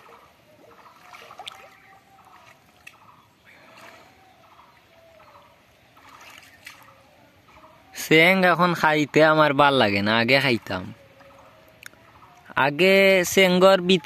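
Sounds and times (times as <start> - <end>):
hands splashing in water: 0.0 - 3.1, 6.0 - 7.0
faint calls: 0.0 - 9.3, 10.1 - 12.6.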